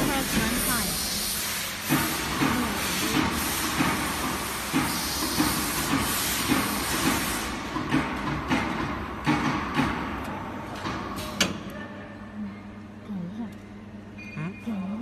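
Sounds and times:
machine table steady hiss: 0.0 - 7.8.

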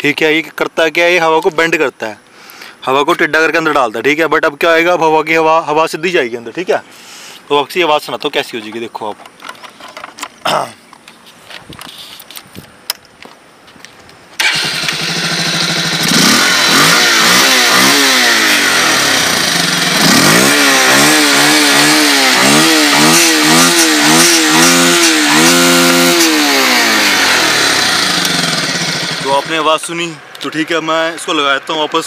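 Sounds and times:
motorcycle engine revving: 14.4 - 30.4.

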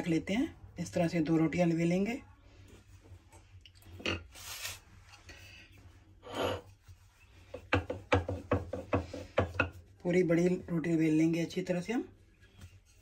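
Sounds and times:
dough rubbing: 4.3 - 13.0
rolling pin rolling dough: 6.6 - 11.8.

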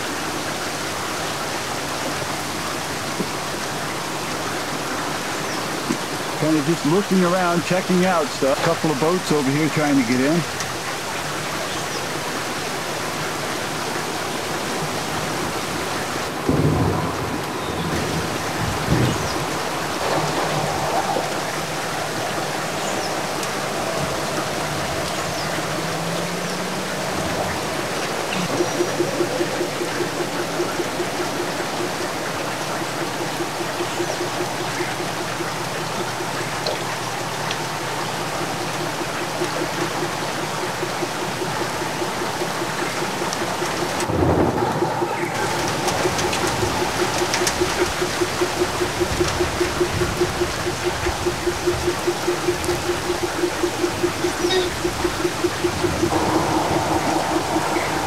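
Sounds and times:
heavy rain pouring: 0.0 - 58.0
thunder rumbling: 14.2 - 58.0
low pulsing sound: 55.1 - 58.0.

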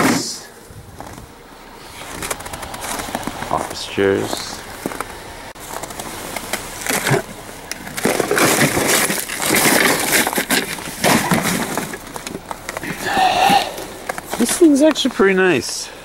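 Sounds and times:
chair rustling and scraping in snow: 0.9 - 13.0.

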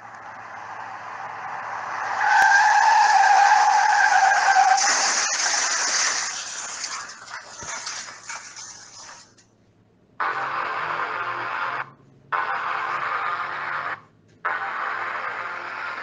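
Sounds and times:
car tyres screeching: 0.0 - 9.3.

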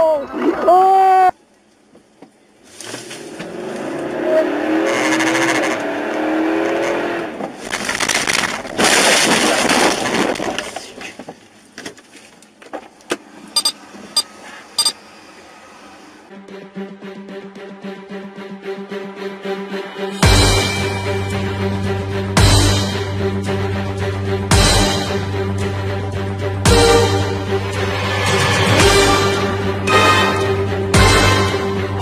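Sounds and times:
car engine accelerating: 3.2 - 7.5
rough crashing and scraping: 7.4 - 11.4.

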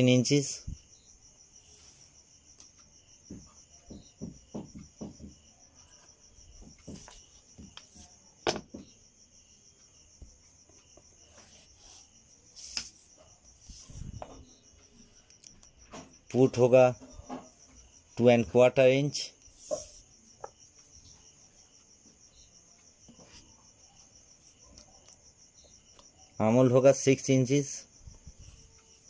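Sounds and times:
cricket trill: 0.0 - 29.0
wooden ruler knocking and scraping: 2.6 - 9.0, 10.2 - 14.9, 15.5 - 18.4, 19.4 - 21.2, 23.1 - 23.5.

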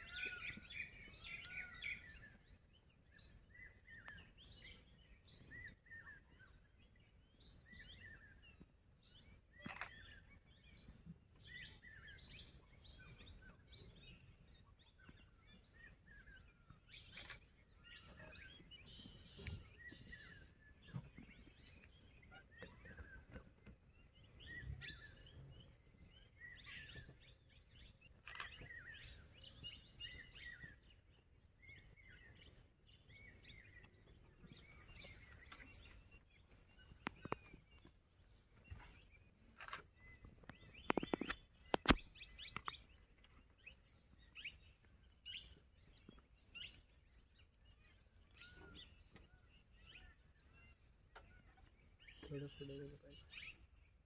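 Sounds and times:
birds chirping: 0.0 - 54.0
loud fast bird trill: 34.7 - 36.0.

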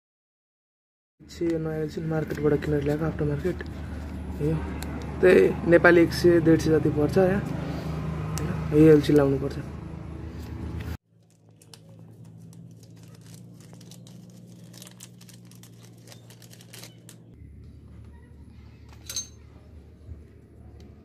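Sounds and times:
plastic packet crinkling and tearing: 11.1 - 17.4.

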